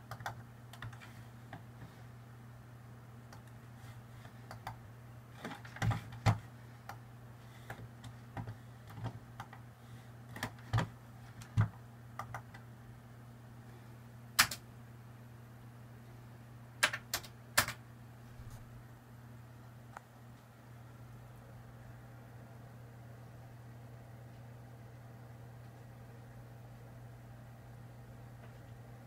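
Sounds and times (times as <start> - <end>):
keyboard keys clicking: 0.0 - 1.1.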